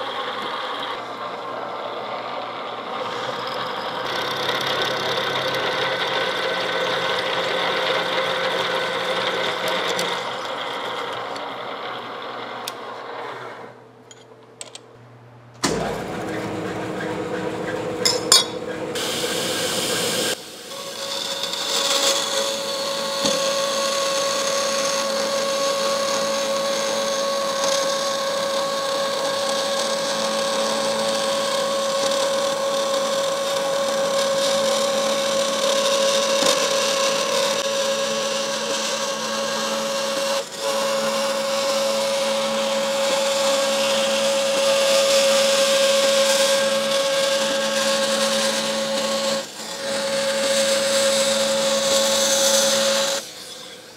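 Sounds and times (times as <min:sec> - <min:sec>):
drill press boring steel: 0:00.0 - 0:14.2, 0:15.6 - 0:53.9
bandsaw cutting steel humming: 0:00.0 - 0:14.8, 0:15.6 - 0:53.9
workshop noise: 0:00.0 - 0:27.1.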